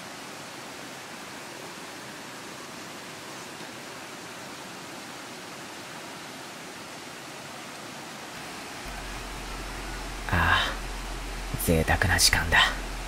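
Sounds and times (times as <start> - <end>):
stream rushing over rocks: 0.0 - 13.0
low rumble: 8.9 - 13.0.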